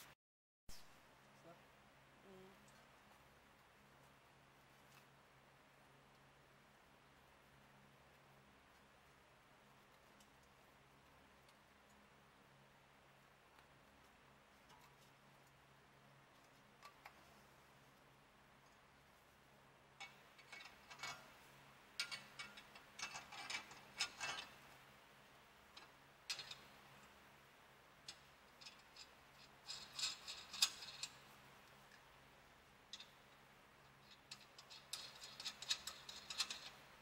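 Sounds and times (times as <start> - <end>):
faint steady hum: 0.0 - 37.0
small metal parts clinking: 22.0 - 24.6, 25.8 - 26.7, 28.1 - 31.3, 33.9 - 36.9.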